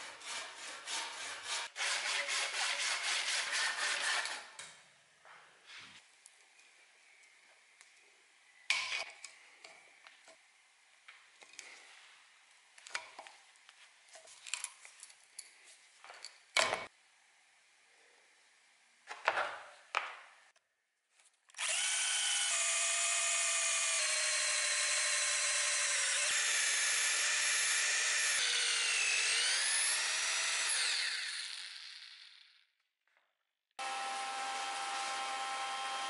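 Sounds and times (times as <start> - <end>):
hand tool scraping wood: 0.0 - 4.5
electric drill boring wood: 21.6 - 32.5, 33.8 - 36.0.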